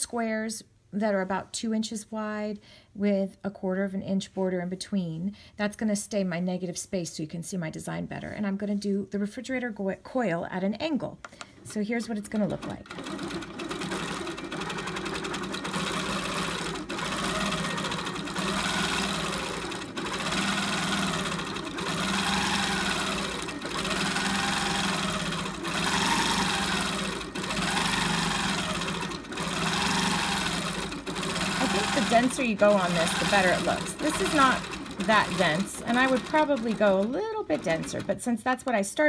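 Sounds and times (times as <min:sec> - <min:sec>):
quilting machine stitching: 0:12.3 - 0:38.8.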